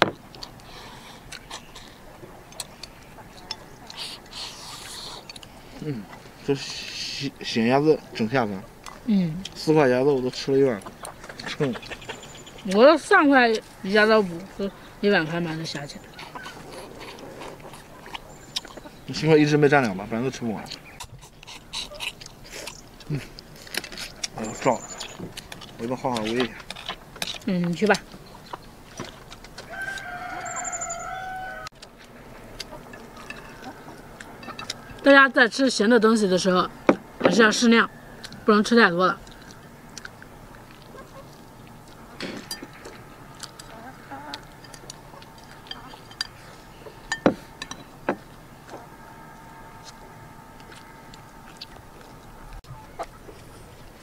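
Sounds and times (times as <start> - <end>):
rooster crowing: 29.6 - 31.8, 48.7 - 51.6
chopsticks clinking on ceramic bowl: 44.4 - 46.4.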